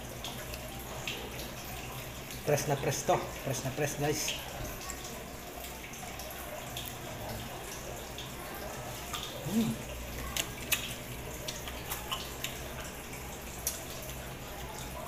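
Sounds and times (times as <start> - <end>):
man chewing: 9.3 - 12.8
man humming mm: 9.4 - 9.9
lip-smack clicks: 10.3 - 12.6.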